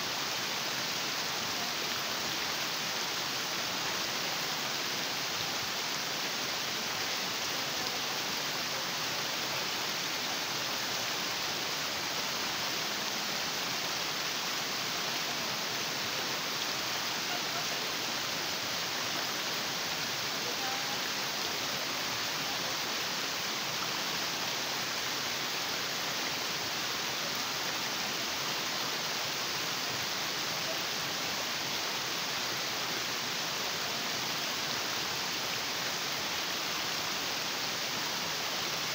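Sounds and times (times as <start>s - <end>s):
stream water rushing over rocks: 0.0s - 38.9s.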